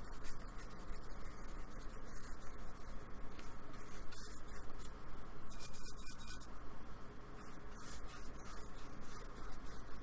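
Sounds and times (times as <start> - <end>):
paintbrush scrubbing on board: 5.5 - 6.5, 7.4 - 10.0.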